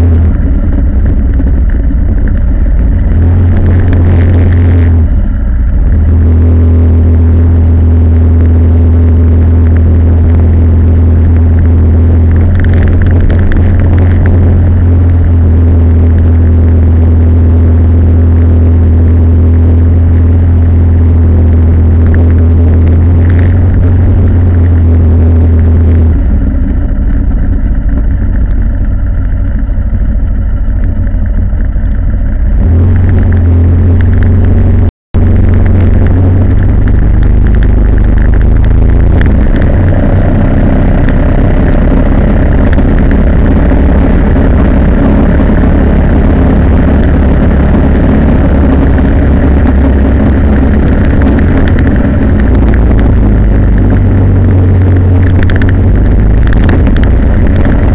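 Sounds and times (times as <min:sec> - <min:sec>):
vehicle engine and road noise: 0:00.0 - 0:57.9.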